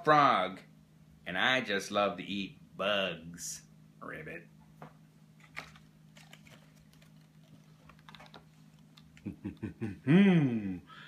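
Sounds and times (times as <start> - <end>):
cardboard pages turning: 5.4 - 9.3
man hooting: 9.8 - 11.0.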